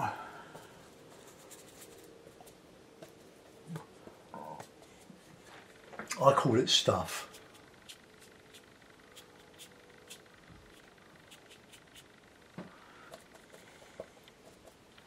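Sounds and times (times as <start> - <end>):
paintbrush dabbing on paper: 6.9 - 12.2, 12.8 - 15.0.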